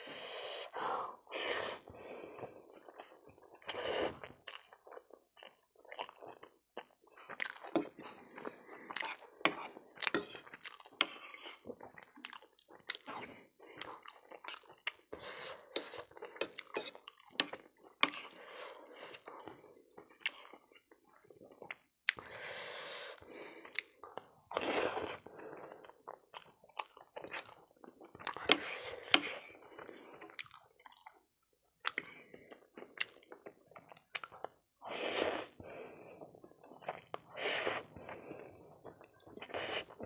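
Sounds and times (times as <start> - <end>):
slurping noodles: 0.0 - 4.4, 28.2 - 30.2, 34.8 - 40.0.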